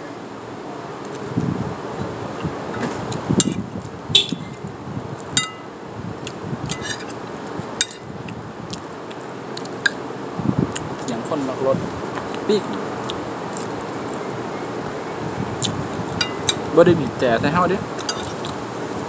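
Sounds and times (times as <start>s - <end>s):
spoon clinking on ceramic plate: 16.2s - 16.6s.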